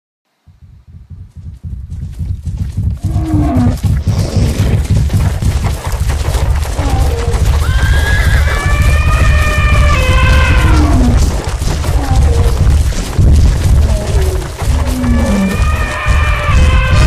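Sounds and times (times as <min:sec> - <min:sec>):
herd stampeding: 0:00.6 - 0:17.0
long high animal call: 0:06.8 - 0:11.2
short falling animal calls: 0:06.8 - 0:11.2.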